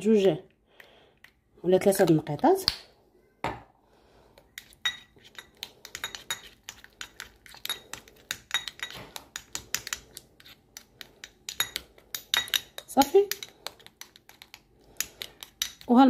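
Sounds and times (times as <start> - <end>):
metal spoon clinking in dish: 4.6 - 10.0, 11.5 - 13.5.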